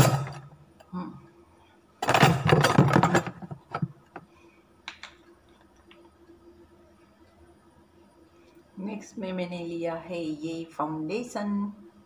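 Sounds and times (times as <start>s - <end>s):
faint steady hum: 0.0s - 12.0s
make-up items clattering: 2.0s - 4.0s.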